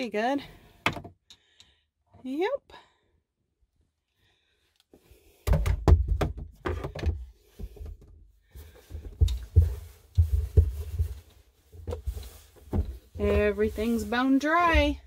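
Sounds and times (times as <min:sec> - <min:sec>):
hand rummaging through clothes: 0:07.2 - 0:15.0.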